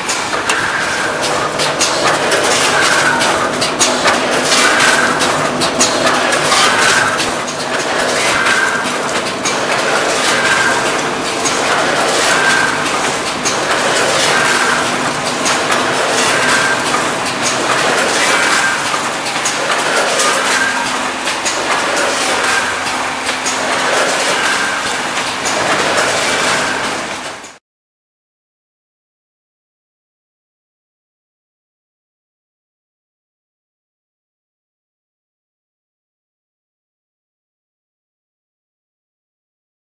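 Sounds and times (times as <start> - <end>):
packing machine clattering: 0.0 - 27.6.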